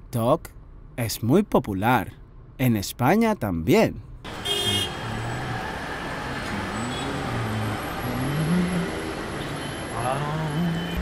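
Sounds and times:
car engine and tyre noise: 4.0 - 11.0.

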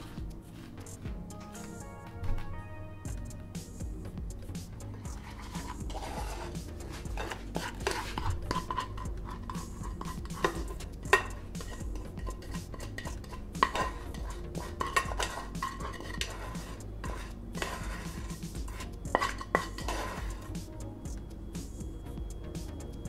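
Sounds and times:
spoon scraping in pan: 5.0 - 20.5.

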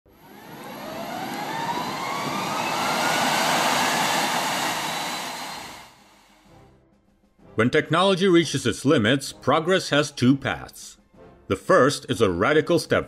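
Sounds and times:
aircraft engine roar with rising whine: 0.1 - 6.5.

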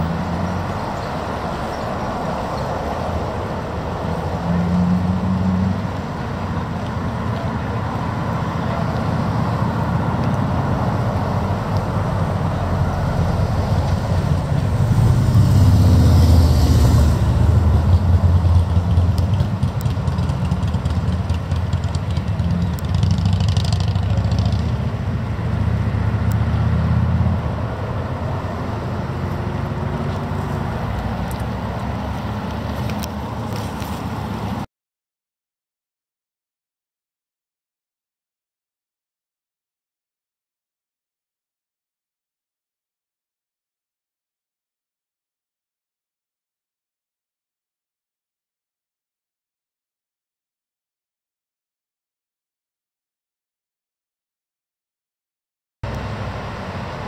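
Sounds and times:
traffic rumble: 0.0 - 34.7, 55.8 - 57.0.

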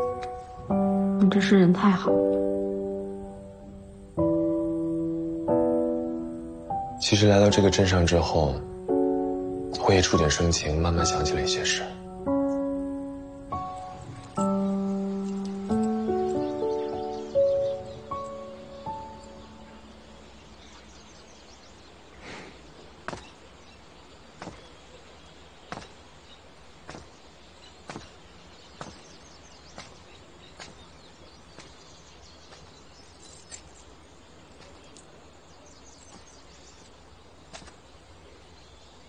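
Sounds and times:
faint outdoor background: 0.0 - 39.0
footsteps on stone paving: 13.6 - 16.6, 22.3 - 35.2, 35.9 - 37.9.

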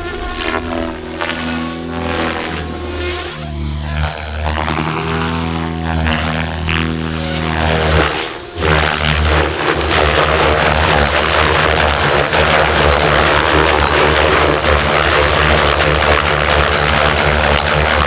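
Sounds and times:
motor whine: 0.0 - 18.0
rc helicopter rotor blades beating: 0.0 - 18.0.

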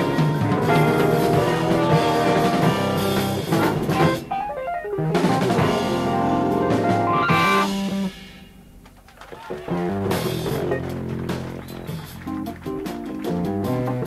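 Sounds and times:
electric bass: 0.0 - 4.3, 5.0 - 8.3, 9.7 - 14.0
keyboards and synthesizer: 0.0 - 8.3
electric guitar: 0.0 - 8.5, 9.5 - 14.0
drum kit: 0.0 - 14.0.

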